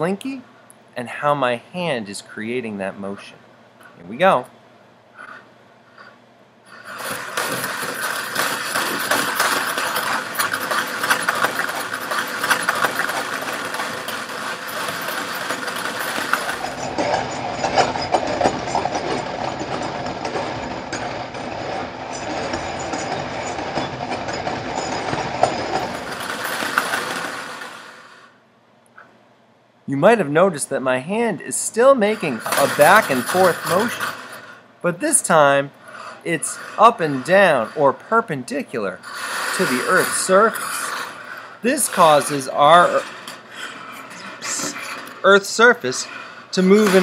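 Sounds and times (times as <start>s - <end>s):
metal coils clattering and jangling: 7.0s - 18.8s.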